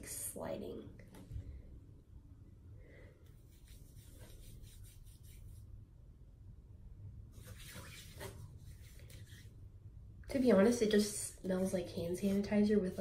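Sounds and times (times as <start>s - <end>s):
hands rubbing together: 3.4s - 5.7s, 7.4s - 9.5s.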